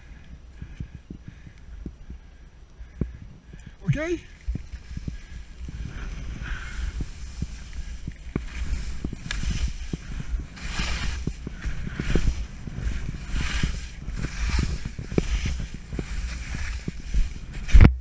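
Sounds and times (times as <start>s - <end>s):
wind rumble on microphone: 0.0s - 18.0s
skis knocking on bumps: 3.9s - 18.0s
skis scraping over snow: 3.9s - 18.0s.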